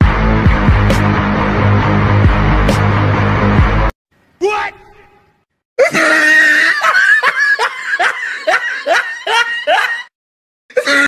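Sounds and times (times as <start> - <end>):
person laughing loudly: 5.8 - 10.1.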